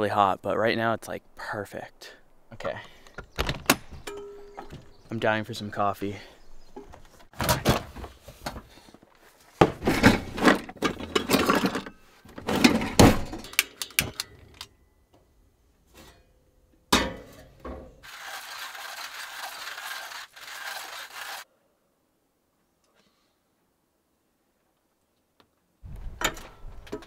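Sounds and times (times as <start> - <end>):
rummaging and clattering: 6.8 - 14.6
cabinet opening: 7.4 - 8.1.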